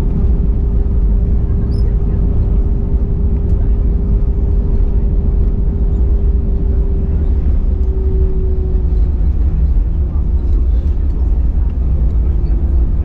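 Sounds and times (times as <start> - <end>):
aircraft cabin low rumble: 0.0 - 13.0
steady hum: 0.0 - 13.0.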